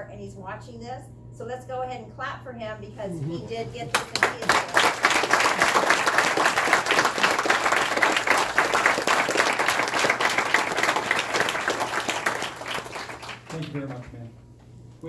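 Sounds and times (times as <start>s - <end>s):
crowd applauding: 3.9s - 14.2s.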